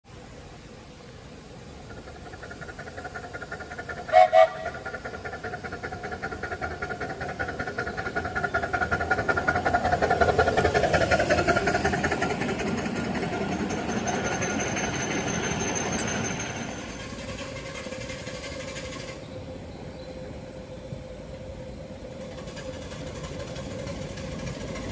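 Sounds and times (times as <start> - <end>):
steam locomotive running by: 0.1 - 24.9
steam locomotive whistle toots: 4.1 - 4.9.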